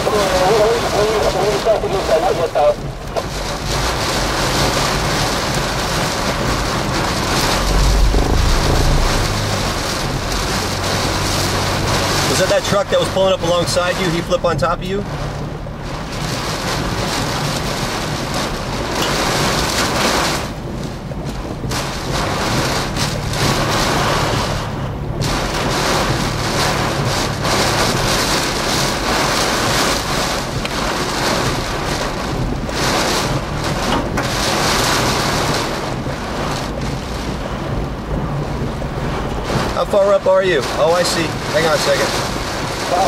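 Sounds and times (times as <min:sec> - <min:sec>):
heavy rain pelting a vehicle: 0:00.0 - 0:43.0
steady low rumble: 0:00.6 - 0:12.6.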